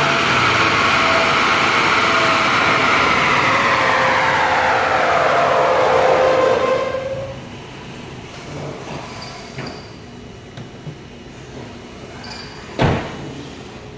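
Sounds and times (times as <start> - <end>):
vehicle engine winding down: 0.0 - 7.2.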